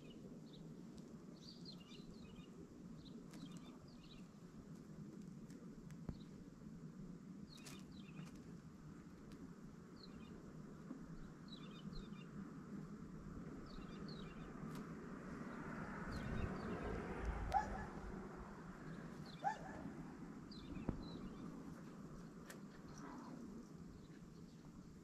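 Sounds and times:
songbirds chirping: 0.0s - 6.6s, 7.2s - 25.0s
low steady rumble: 0.0s - 25.0s.

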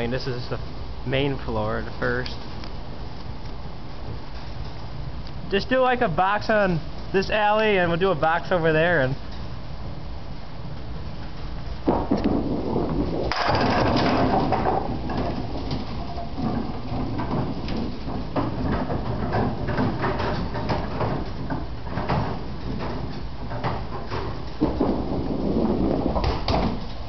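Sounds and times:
bowling ball rumbling down lane: 11.7s - 27.0s
ball crashing into pins: 11.8s - 27.0s
clatter of pins and balls: 11.8s - 27.0s.

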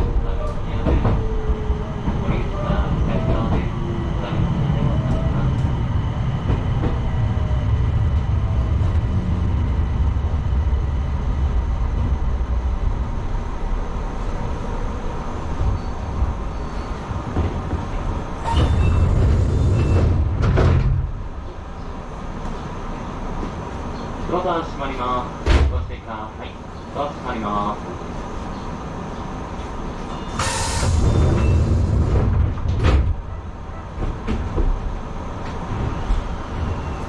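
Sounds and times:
electric train rumble: 0.0s - 37.0s
train braking noise burst: 18.4s - 20.2s, 30.1s - 31.9s.

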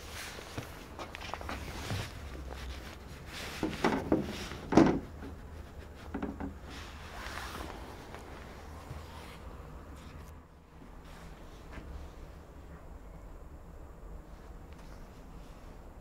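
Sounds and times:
soft knocks and rubs on wood: 0.6s - 10.3s.

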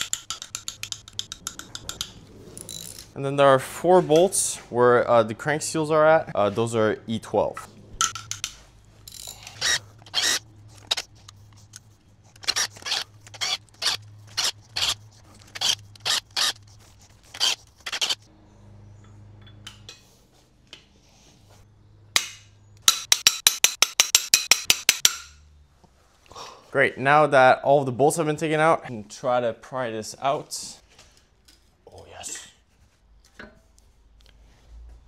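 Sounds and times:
socket ratchet clicking: 0.0s - 3.0s, 8.0s - 11.8s, 22.8s - 25.3s.

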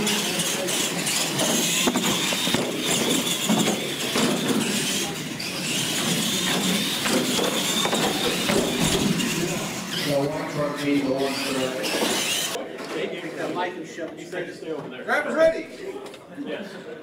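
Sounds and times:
toy truck motors whining: 0.0s - 12.6s
tyres rolling on concrete: 0.0s - 12.6s.

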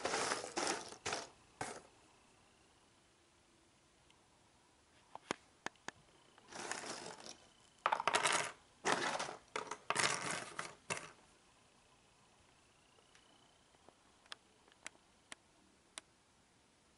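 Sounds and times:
puzzle pieces rattling into drawer: 0.0s - 1.8s, 6.5s - 11.2s.

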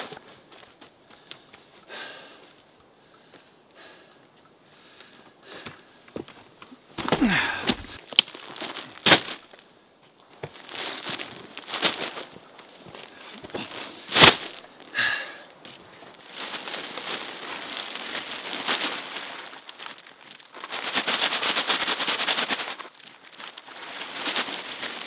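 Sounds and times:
sacks crinkling and rustling: 6.6s - 25.0s.

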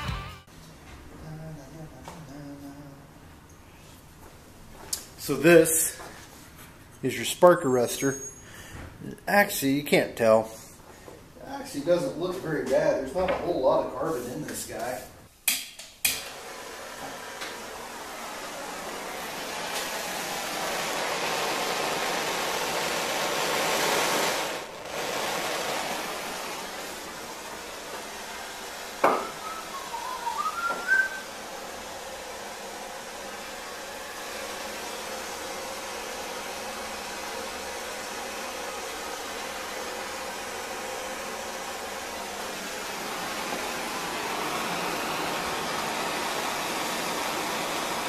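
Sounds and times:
short squeaks: 8.0s - 8.6s
propane torch hissing: 16.0s - 48.0s.

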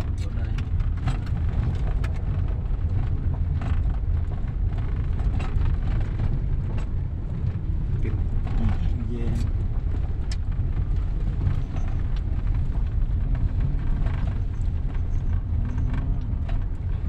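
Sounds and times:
car cabin road rumble: 0.0s - 17.0s
light knocks and rattles: 0.0s - 17.0s.

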